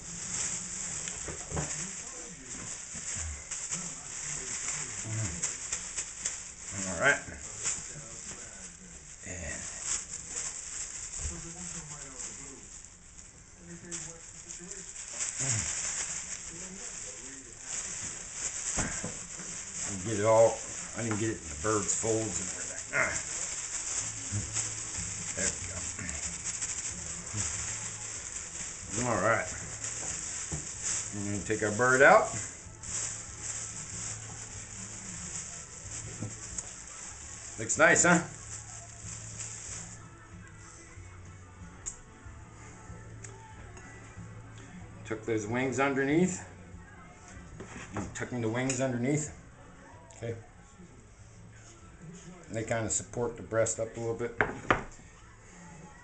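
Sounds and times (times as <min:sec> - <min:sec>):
plastic bag crinkling: 0:00.0 - 0:40.6.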